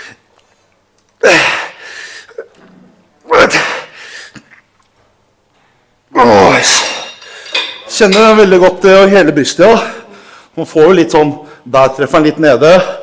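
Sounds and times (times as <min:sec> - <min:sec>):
man grunting: 0:01.2 - 0:02.5, 0:03.3 - 0:03.9, 0:06.1 - 0:07.0.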